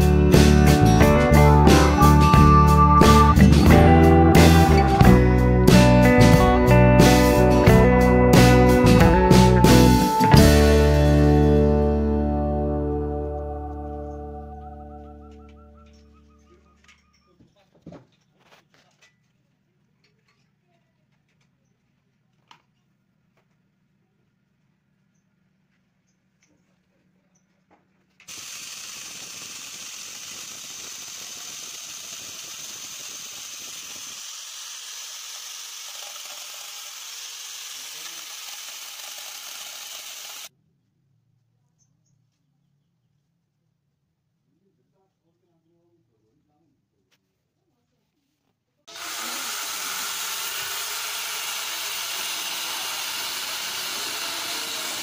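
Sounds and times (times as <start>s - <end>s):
grinder motor whine: 0.0s - 6.8s, 28.3s - 40.5s, 48.9s - 55.0s
chain cutting wood: 28.2s - 40.5s, 48.9s - 55.0s.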